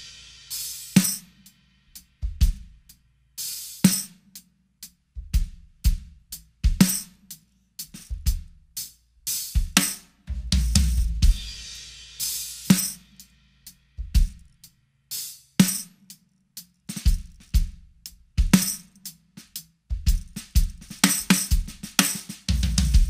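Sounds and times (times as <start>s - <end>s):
bass drum: 0.0s - 3.0s, 5.1s - 7.2s, 7.8s - 8.8s, 9.4s - 13.2s, 13.9s - 14.8s, 16.9s - 23.0s
cymbals: 0.0s - 4.4s, 8.8s - 16.2s
snare drum with tambourine jingle: 0.0s - 4.5s, 5.2s - 23.0s.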